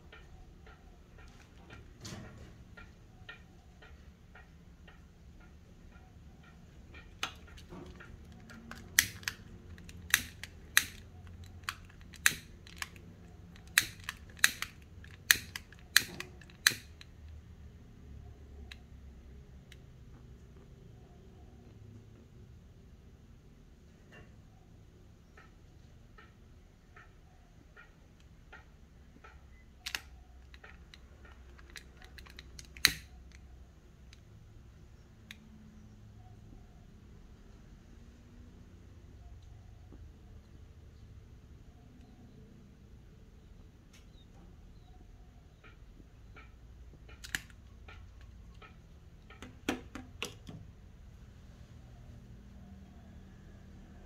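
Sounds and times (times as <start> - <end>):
lighter igniter clicking: 9.0 - 9.4, 10.1 - 11.0, 13.6 - 16.9, 32.8 - 33.1.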